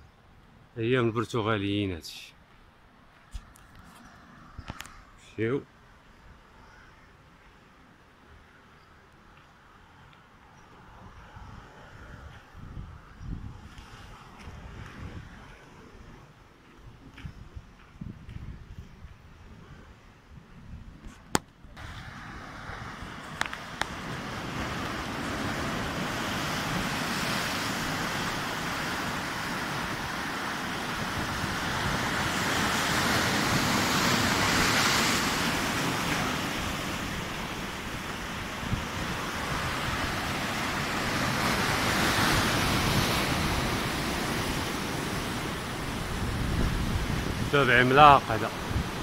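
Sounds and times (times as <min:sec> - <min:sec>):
wind buffeting microphone: 0:10.9 - 0:49.0
surf washing against rocks: 0:21.8 - 0:49.0.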